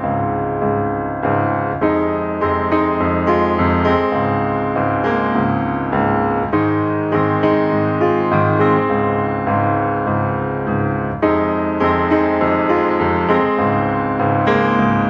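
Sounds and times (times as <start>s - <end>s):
background piano music: 0.0s - 15.0s.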